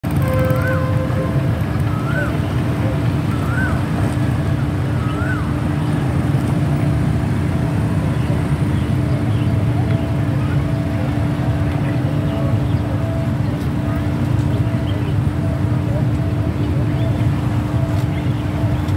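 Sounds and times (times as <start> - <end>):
low engine rumble: 0.0 - 18.9.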